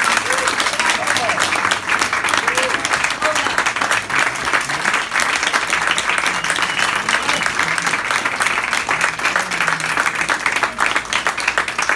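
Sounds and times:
audience applauding: 0.0 - 11.9
faint voices: 0.1 - 11.3.

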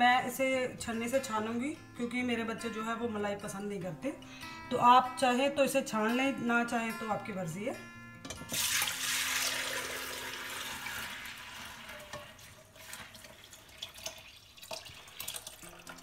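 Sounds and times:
milk pouring into glass bowl: 8.5 - 16.0
liquid drips: 12.1 - 16.0.

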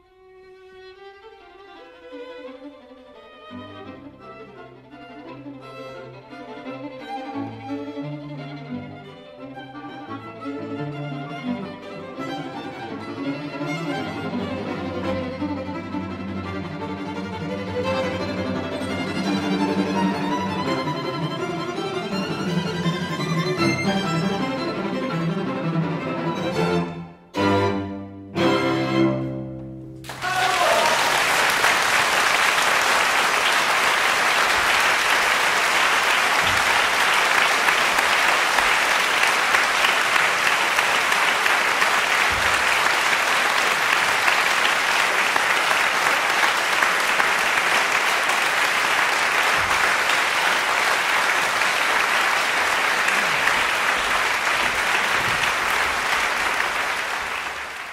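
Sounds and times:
audience applauding: 30.0 - 57.9.

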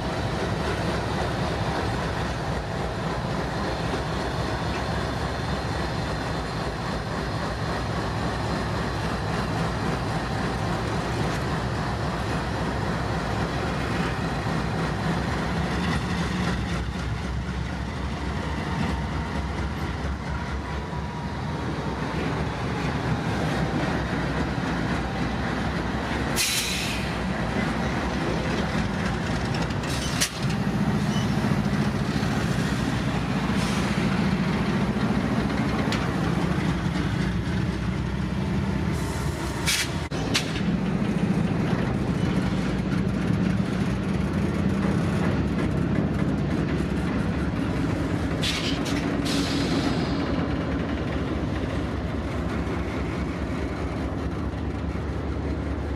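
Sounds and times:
diesel locomotive running: 0.0 - 55.9
wheel and rail noise: 0.0 - 55.9
short hiss: 26.4 - 27.1.

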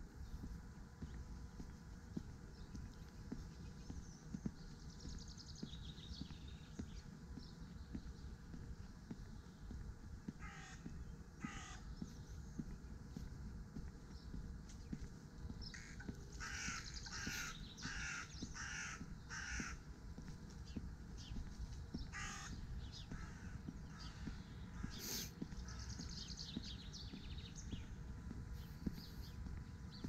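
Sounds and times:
crow cawing: 10.4 - 11.8, 15.8 - 19.8, 22.1 - 22.6.

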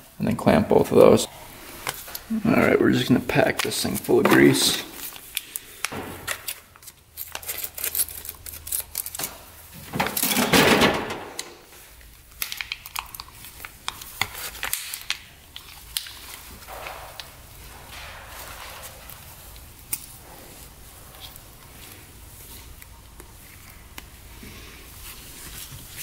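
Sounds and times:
foil sachet crinkling and tearing: 6.4 - 9.3.

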